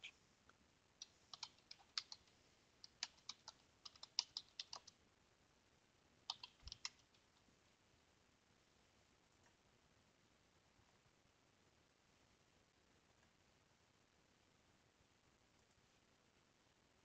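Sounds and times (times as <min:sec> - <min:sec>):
typing on computer keyboard: 0:01.0 - 0:05.0, 0:06.3 - 0:07.2.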